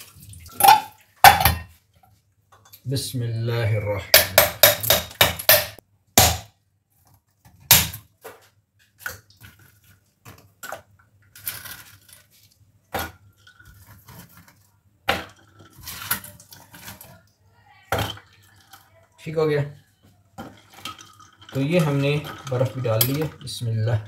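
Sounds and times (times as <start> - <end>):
ice clinking into a glass jug: 20.4 - 24.0.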